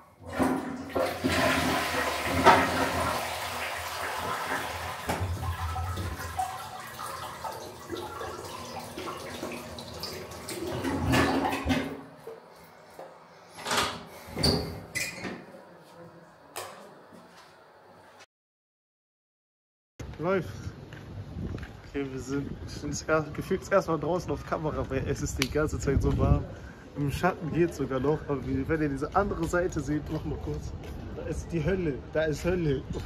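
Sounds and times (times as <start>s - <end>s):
toilet flushing: 0.0s - 12.6s.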